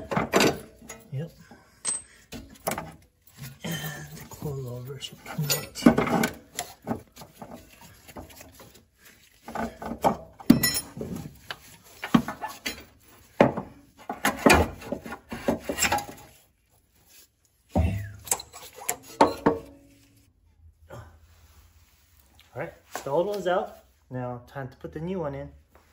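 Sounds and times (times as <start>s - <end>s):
metal clunks and knocks: 0.0s - 3.0s, 5.3s - 7.6s, 12.1s - 16.2s, 17.7s - 19.8s.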